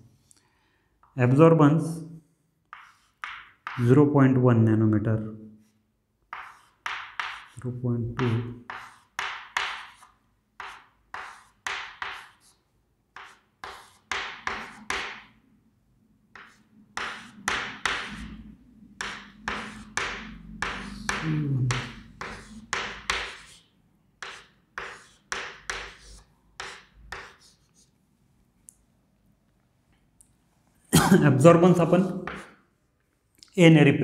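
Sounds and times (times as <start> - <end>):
chalk tapping and scraping on chalkboard: 2.6 - 4.0, 5.6 - 15.4, 16.3 - 28.0, 31.8 - 32.6.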